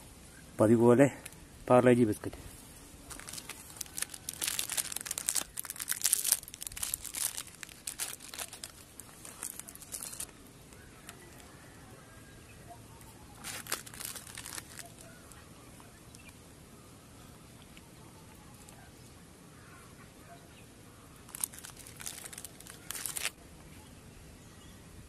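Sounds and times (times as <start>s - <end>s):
wrapper crinkling and tearing: 3.0s - 10.3s, 13.4s - 15.4s, 21.2s - 23.4s.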